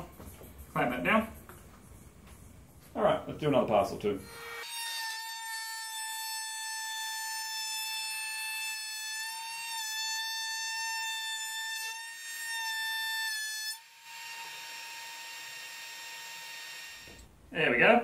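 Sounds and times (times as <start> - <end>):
router high-pitched whine: 4.2 - 4.7.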